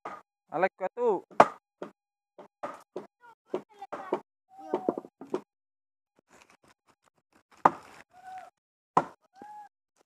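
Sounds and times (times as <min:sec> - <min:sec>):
wooden club striking wooden wedges: 0:00.0 - 0:00.2, 0:01.3 - 0:05.4, 0:09.0 - 0:09.2.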